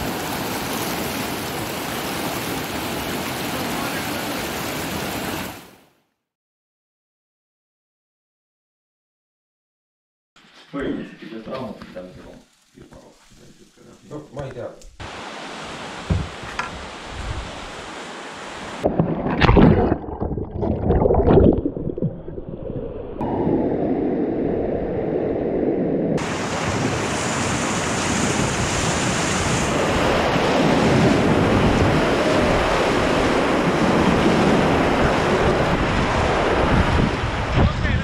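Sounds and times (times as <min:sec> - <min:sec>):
whitewater rapids rushing: 0:00.0 - 0:05.6.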